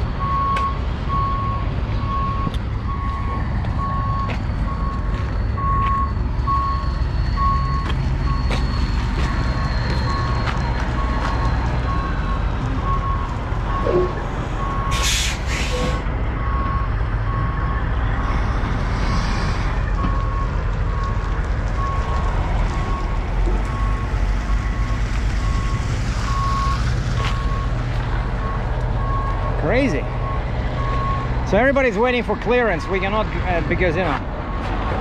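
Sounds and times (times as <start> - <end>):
truck backup alarm beeping: 0.0 - 18.2, 19.8 - 35.0
diesel truck engines idling: 0.0 - 35.0
short sharp air hisses: 14.9 - 16.0.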